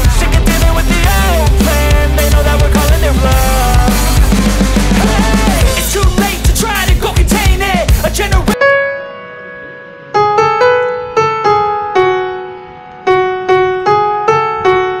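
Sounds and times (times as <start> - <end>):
solo piano: 8.6 - 15.0.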